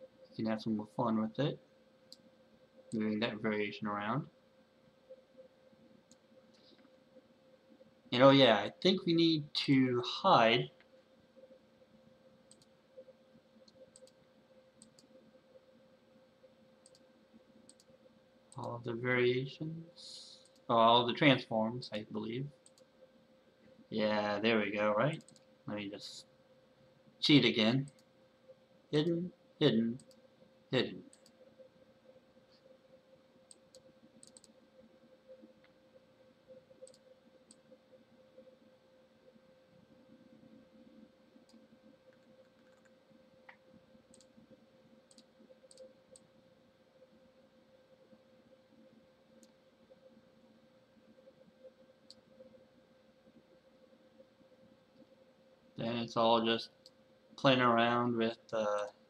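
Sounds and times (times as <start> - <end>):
low electrical hum: 0.0 - 59.0
faint computer mouse clicks: 13.6 - 14.2, 14.8 - 15.1, 16.8 - 17.0, 22.6 - 22.9, 33.5 - 34.6, 36.8 - 37.6, 41.4 - 44.3, 45.1 - 46.3.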